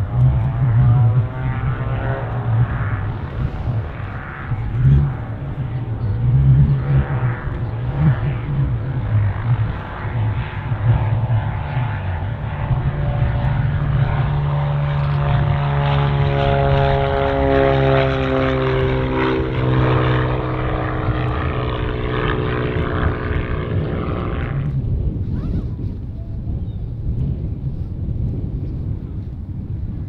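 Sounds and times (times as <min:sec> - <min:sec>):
propeller plane taking off: 0:00.0 - 0:30.0.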